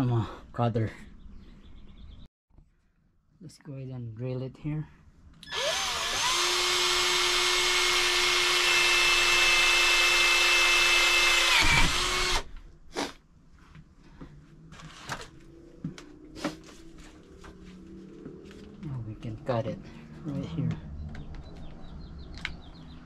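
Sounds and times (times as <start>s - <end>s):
cordless drill boring pipe: 5.4s - 12.5s.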